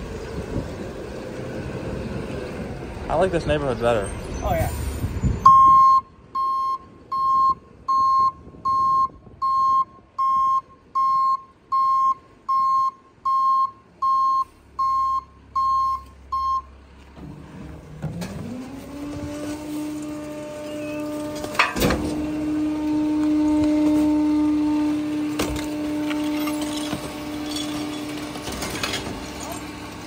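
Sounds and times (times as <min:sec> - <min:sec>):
truck engine: 0:00.0 - 0:30.0
truck reversing alarm beeping: 0:05.3 - 0:16.8, 0:20.1 - 0:28.2.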